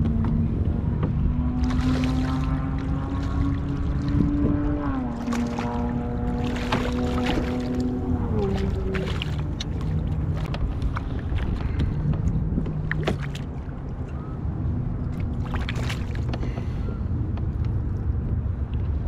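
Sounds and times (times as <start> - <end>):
wind rumbling on microphone: 0.0 - 19.0
fish thrashing in water: 1.6 - 4.3, 5.1 - 11.9, 12.7 - 13.8, 15.1 - 16.6.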